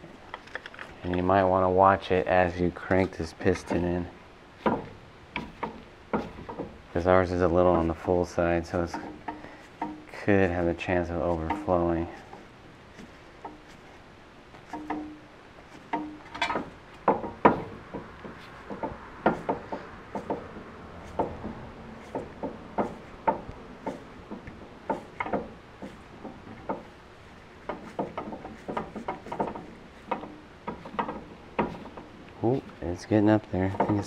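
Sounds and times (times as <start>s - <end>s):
metal clicks and knocks: 0.2s - 13.9s, 14.5s - 34.0s.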